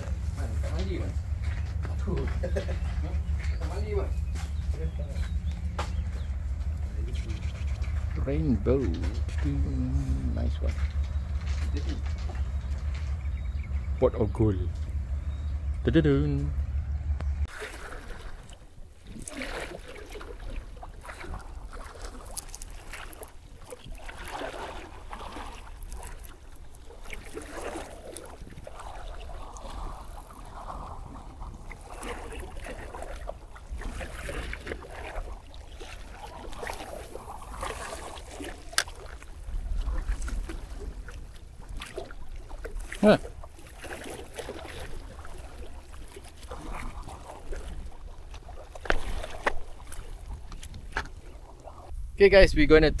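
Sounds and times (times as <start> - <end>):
wind buffeting microphone: 0.0 - 19.3, 20.3 - 53.0
waves washing against seawall: 17.4 - 51.9.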